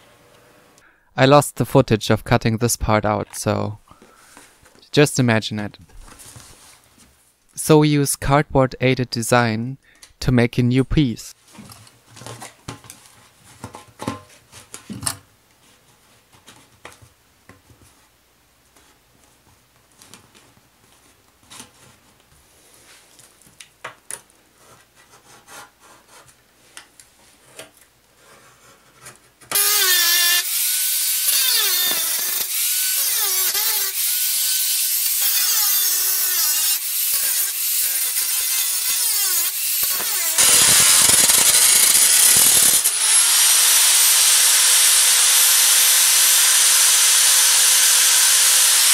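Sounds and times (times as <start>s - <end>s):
angle grinder cutting steel: 29.5s - 48.9s.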